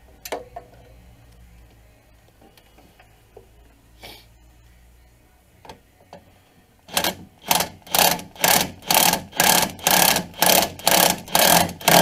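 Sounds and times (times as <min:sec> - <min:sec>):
impact wrench hammering: 0:06.9 - 0:12.0.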